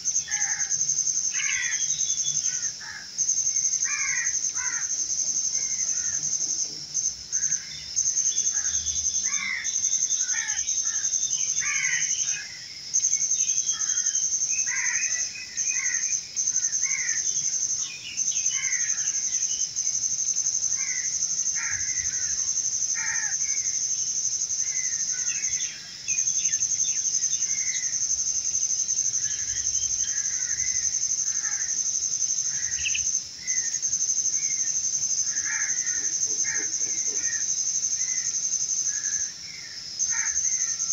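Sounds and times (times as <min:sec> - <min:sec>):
high-pitched insect drone: 0:00.0 - 0:40.9
birds chirping and calling: 0:32.4 - 0:33.8.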